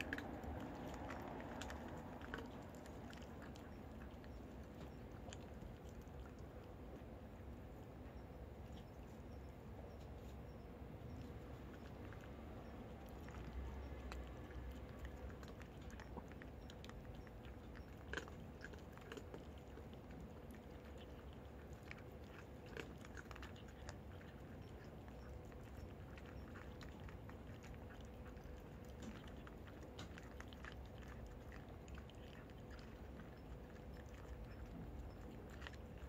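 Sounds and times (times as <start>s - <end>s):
cat crunching dry food: 0.0s - 36.0s.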